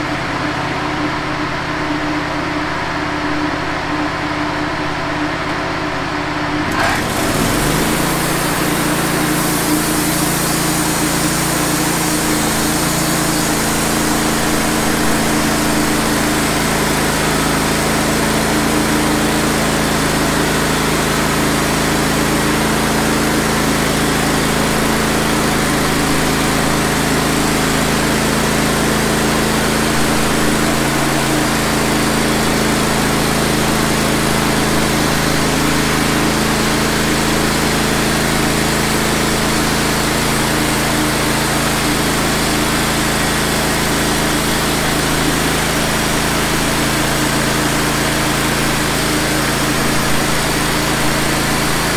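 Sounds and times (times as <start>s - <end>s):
sawmill engine running: 0.0s - 51.9s
band blade sawing through log: 6.7s - 15.8s.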